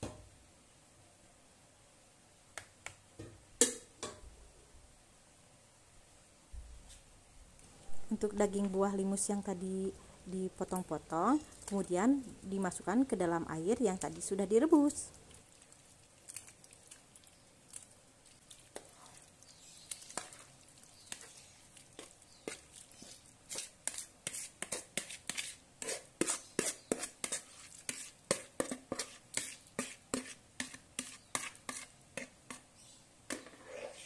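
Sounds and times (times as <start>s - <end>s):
metal spoon scraping plastic basin: 33.3s - 34.0s.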